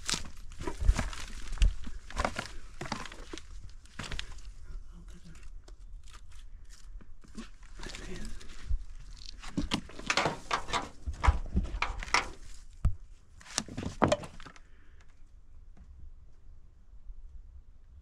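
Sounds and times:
footsteps crunching on loose rock: 0.0s - 4.6s, 7.0s - 14.6s.

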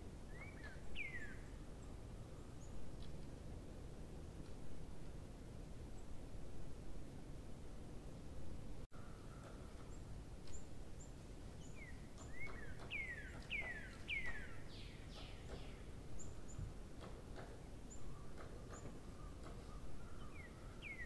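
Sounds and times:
thin high bird chirps: 11.6s - 16.6s.

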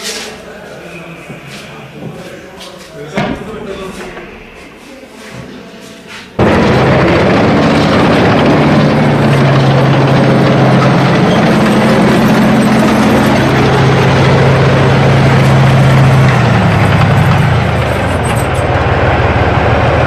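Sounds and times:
tank engine drone: 6.4s - 20.0s.

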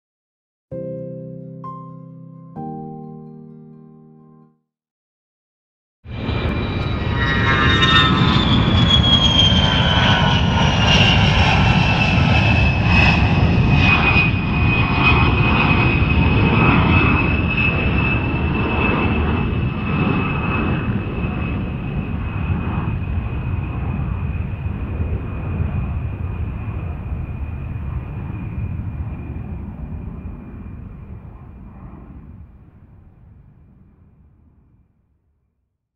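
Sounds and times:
jet engine rumble and whine: 6.1s - 34.5s.

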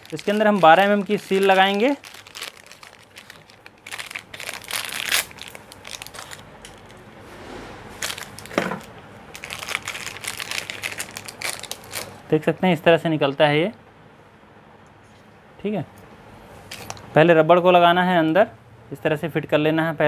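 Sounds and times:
plastic packet crinkling: 0.0s - 7.0s, 8.0s - 12.2s.

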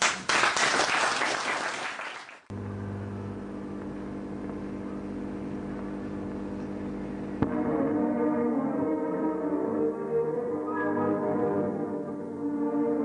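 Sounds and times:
audience applauding: 0.0s - 2.5s
low drone of held tones: 3.9s - 13.0s.

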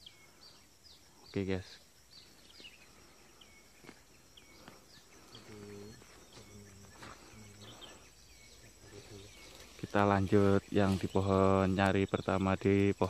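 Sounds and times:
insect drone: 0.0s - 13.0s
low hoots: 2.9s - 9.8s.

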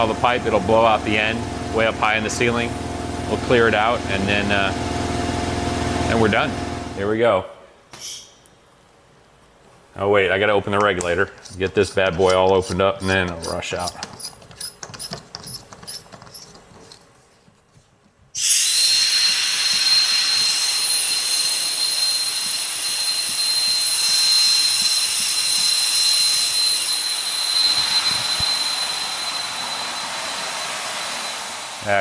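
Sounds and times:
compressed air hissing from pipe: 18.4s - 23.0s.

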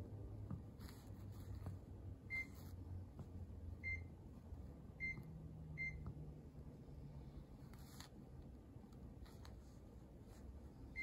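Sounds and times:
low steady hum: 0.0s - 11.0s
air conditioner beeps: 2.1s - 6.5s, 10.8s - 11.0s.

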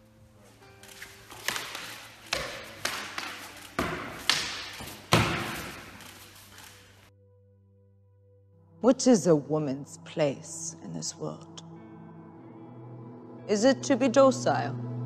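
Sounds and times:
weapon blows striking a shield: 3.8s - 5.9s.

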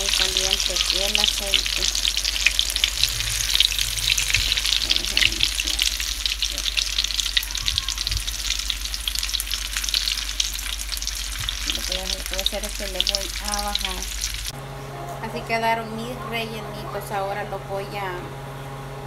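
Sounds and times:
fritters deep-frying in oil: 0.0s - 14.6s.

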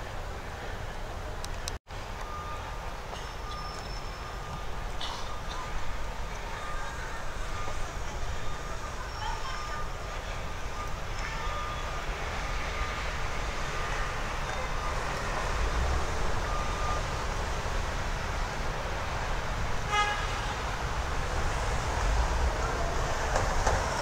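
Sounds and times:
rumble of passing vehicles: 0.0s - 24.0s
high-pitched car horn toot: 19.8s - 20.6s.

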